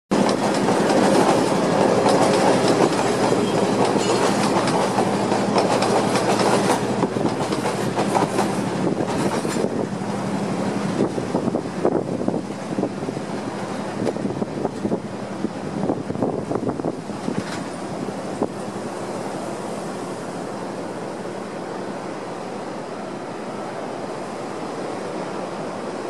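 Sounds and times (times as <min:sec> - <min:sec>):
train wheels clicking over rail joints: 0:00.1 - 0:10.0, 0:17.1 - 0:18.8
diesel train engine drone: 0:00.1 - 0:26.0.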